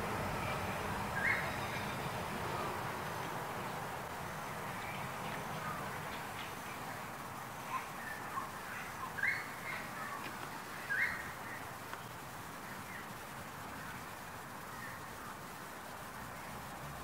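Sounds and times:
flock of birds calling: 0.0 - 11.7
background hiss: 0.0 - 17.0.

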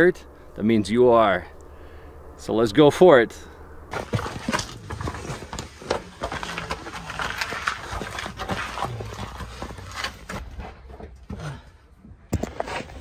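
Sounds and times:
clothing scraping against rock: 3.9 - 11.0.

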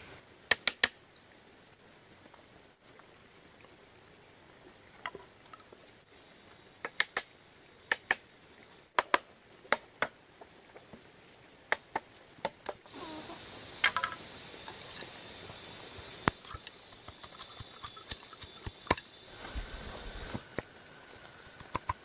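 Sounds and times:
steady hiss with high tone: 0.0 - 22.0
sharp knocks on bamboo: 9.0 - 10.2.

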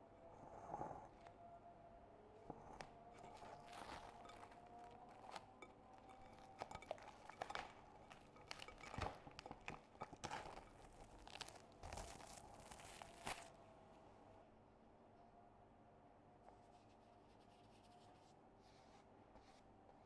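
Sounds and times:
plastic cling film crinkling: 6.4 - 13.6.

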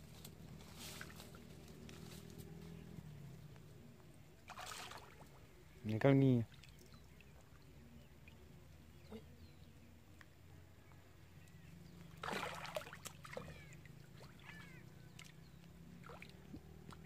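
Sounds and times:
fish thrashing and splashing in water: 4.4 - 5.4, 12.1 - 15.4.

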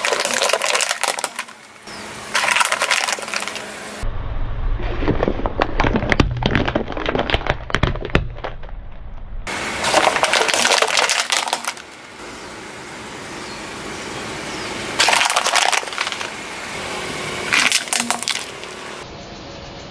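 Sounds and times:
objects cracking and crunching: 0.0 - 3.7, 4.8 - 12.0, 15.0 - 16.4, 17.5 - 18.7
steady low rumble: 3.8 - 10.5.

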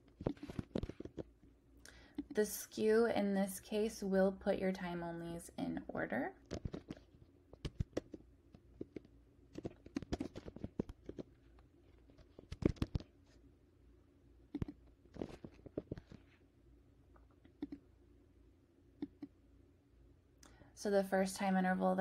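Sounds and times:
computer keyboard typing: 7.6 - 8.2, 12.4 - 13.1, 14.5 - 14.8.

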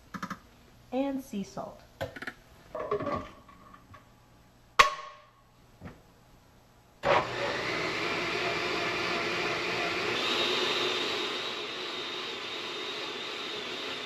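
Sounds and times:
blender running: 7.0 - 14.0.

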